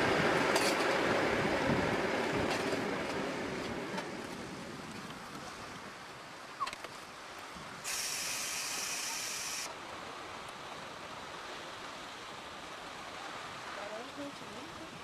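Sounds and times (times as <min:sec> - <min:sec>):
train running noise: 0:00.0 - 0:04.9
loud hiss: 0:07.8 - 0:09.7.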